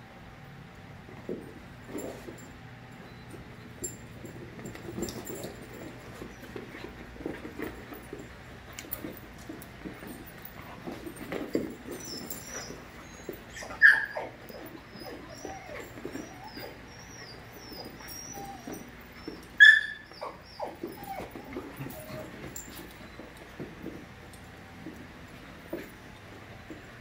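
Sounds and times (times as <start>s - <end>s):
scuffling and growling: 4.0s - 27.0s
puppy whimpering: 12.0s - 23.3s
puppy yipping barks: 13.6s - 14.3s, 19.6s - 20.8s.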